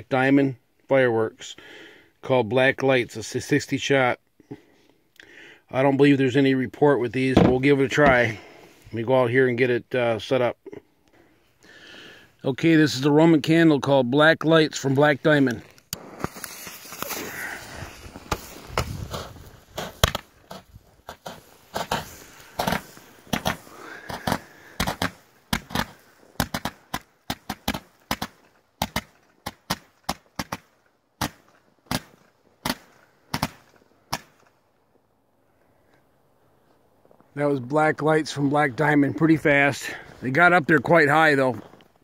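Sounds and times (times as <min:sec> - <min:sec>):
roman candle shots popping: 0:15.4 - 0:34.6
firework crackle: 0:16.0 - 0:29.0.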